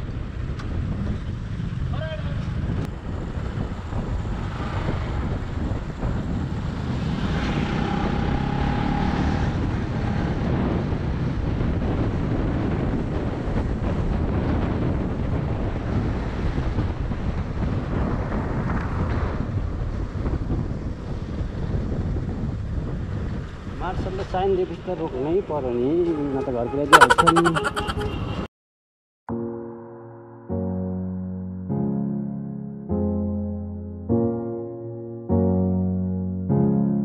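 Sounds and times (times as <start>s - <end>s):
wind buffeting microphone: 0.0s - 25.1s.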